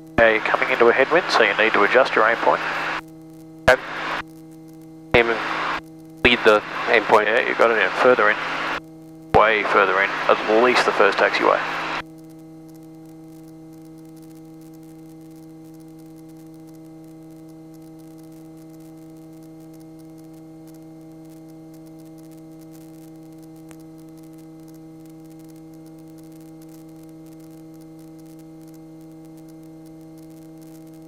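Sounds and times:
electrical hum with hiss: 0.0 - 31.0
steady intercom tones: 0.2 - 3.0, 3.7 - 4.2, 5.2 - 8.8, 9.4 - 12.0.

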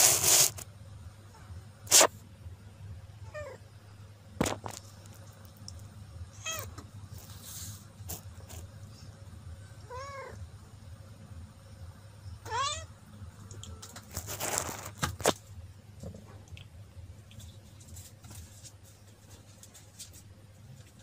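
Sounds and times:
cat meowing: 6.4 - 6.8, 9.8 - 10.4, 12.4 - 12.9.

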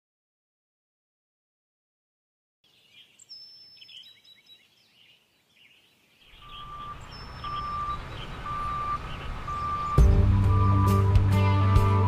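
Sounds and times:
faint birds chirping: 2.6 - 11.4
electronic beeps: 6.4 - 11.1
combine harvester engine: 6.4 - 12.0.

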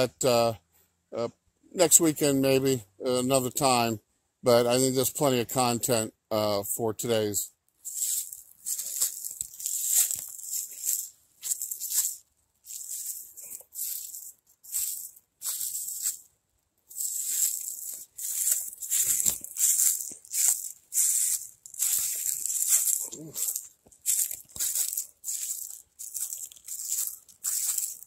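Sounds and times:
footsteps crunching dry leaves: 7.8 - 28.0.

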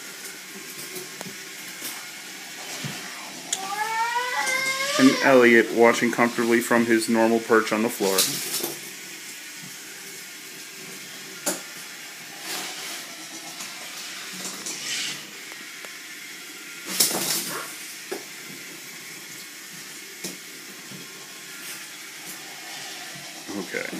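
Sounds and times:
steady hiss: 0.0 - 23.9
toy train track clattering on tiles: 8.0 - 8.8, 12.4 - 15.4, 16.9 - 17.5.

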